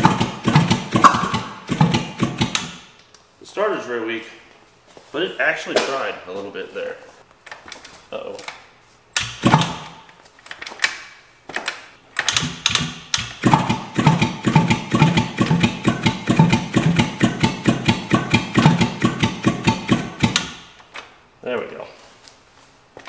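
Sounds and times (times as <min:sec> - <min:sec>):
electric starter cranking engine: 0:00.0 - 0:02.8, 0:09.2 - 0:09.9, 0:12.3 - 0:20.6.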